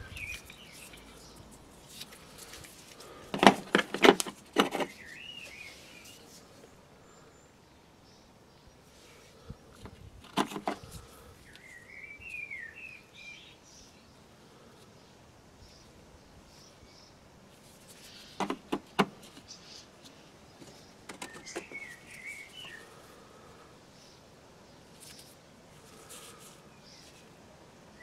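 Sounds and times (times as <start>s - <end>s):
bird chirping: 0.0s - 1.6s, 4.7s - 9.9s, 10.6s - 14.2s, 17.9s - 25.4s.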